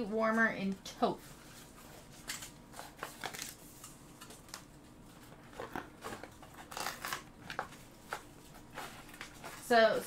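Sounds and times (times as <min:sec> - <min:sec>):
packaging rustling and clicking: 0:05.3 - 0:09.7.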